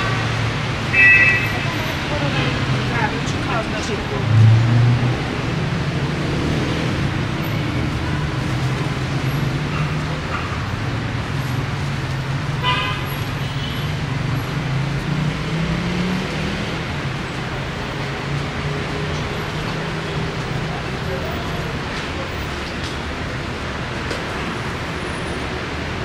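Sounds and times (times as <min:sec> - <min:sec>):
vehicle engines humming: 0:00.0 - 0:26.0
car horn toot: 0:00.9 - 0:01.7.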